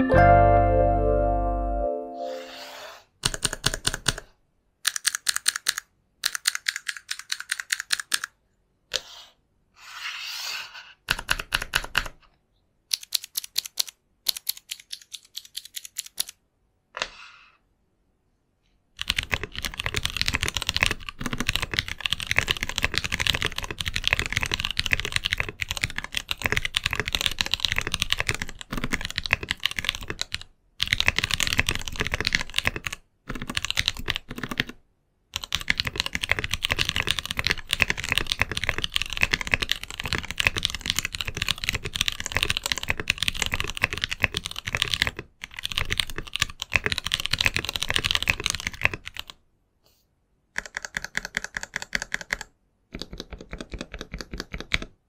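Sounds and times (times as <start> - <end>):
fast typing on mechanical keyboard: 3.2 - 4.3, 4.9 - 8.3, 11.1 - 12.2, 12.9 - 16.4, 19.0 - 34.8, 35.4 - 49.4, 50.6 - 54.9.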